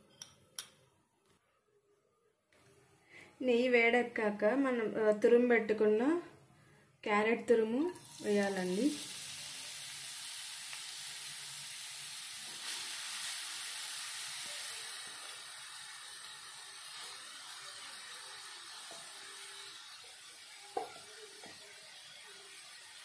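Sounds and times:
carrot sizzling in hot fat: 7.9 - 23.0.

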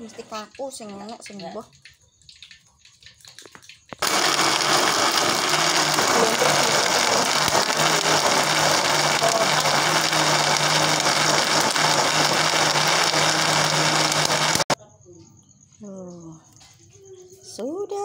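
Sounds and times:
blender whirring: 4.0 - 14.8.

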